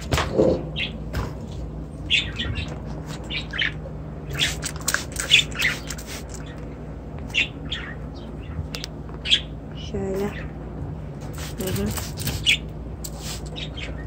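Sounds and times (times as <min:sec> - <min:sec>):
budgerigars chirping: 0:02.1 - 0:04.6, 0:05.2 - 0:06.6, 0:07.3 - 0:09.6, 0:12.4 - 0:12.6, 0:13.5 - 0:14.0.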